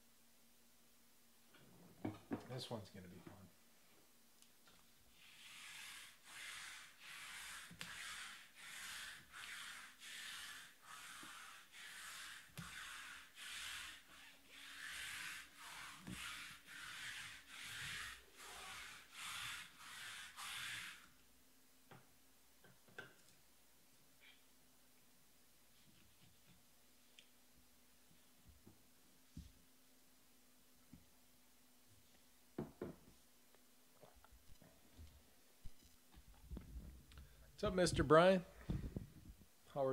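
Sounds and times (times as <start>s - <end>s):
rhythmic rubbing strokes: 5.1s - 21.0s.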